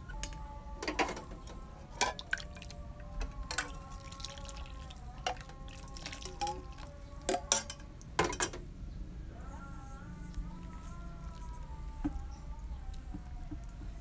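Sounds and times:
milk pouring and dripping into bowl: 3.6 - 7.0.

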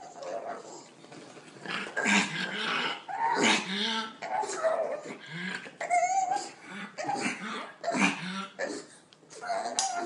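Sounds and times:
dog whining excitedly: 8.6 - 10.0.

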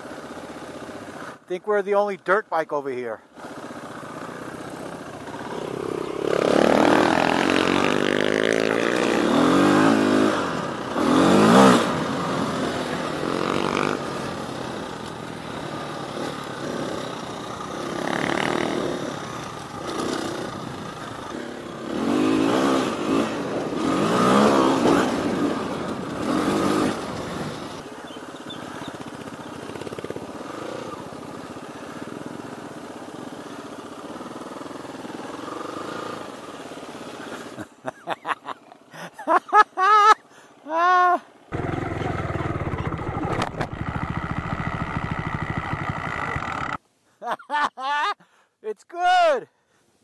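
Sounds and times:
dirt bike engine revving: 3.4 - 37.6, 41.5 - 46.8.

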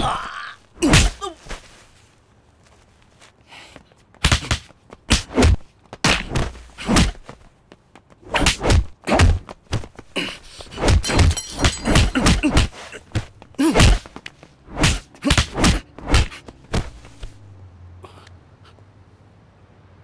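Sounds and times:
punch and kick hits: 0.8 - 1.2, 4.2 - 7.2, 8.3 - 9.9, 10.8 - 17.0.

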